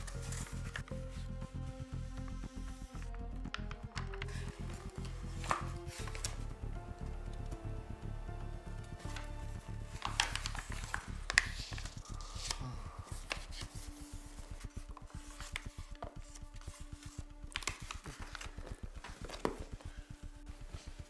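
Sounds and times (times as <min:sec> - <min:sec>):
paper pages and cloth rustling: 0:00.0 - 0:01.4, 0:04.2 - 0:06.4, 0:09.0 - 0:20.1.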